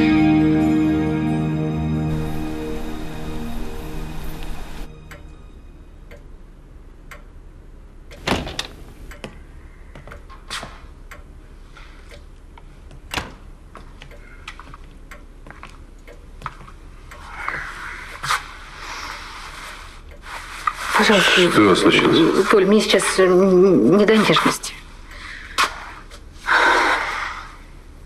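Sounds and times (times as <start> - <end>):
door-like thump: 8.2 - 8.7
knocks and footsteps: 8.2 - 11.0, 11.9 - 16.9.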